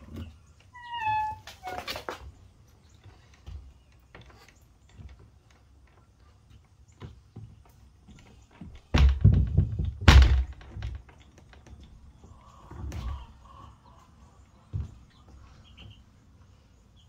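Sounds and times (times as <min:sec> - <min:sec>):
chicks pecking and scratching: 0:00.0 - 0:10.0, 0:10.6 - 0:17.0
loud thumps: 0:08.9 - 0:11.0.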